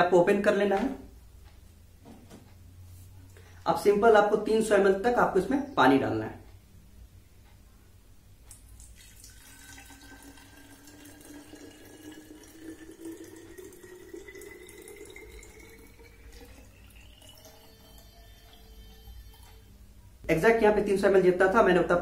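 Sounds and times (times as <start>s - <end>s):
water pouring into bottle: 8.8s - 19.5s.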